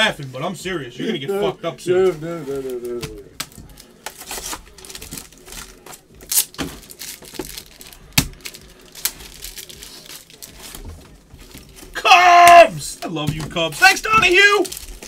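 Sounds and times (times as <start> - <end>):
plastic wrapping crinkling: 2.1 - 12.0, 13.8 - 15.0.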